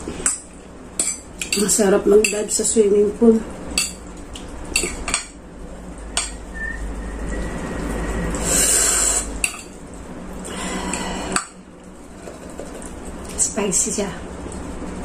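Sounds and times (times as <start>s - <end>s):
hiss: 8.4s - 9.4s.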